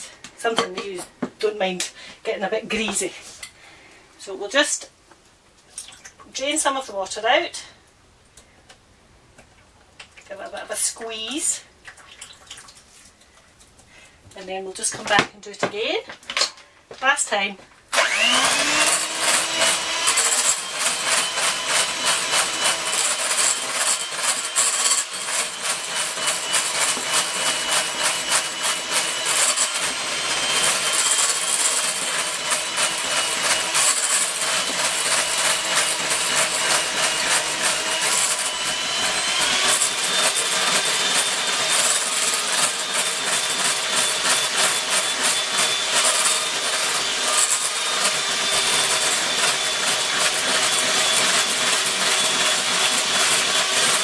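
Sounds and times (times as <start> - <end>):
electric hand mixer whining: 17.9 - 54.0.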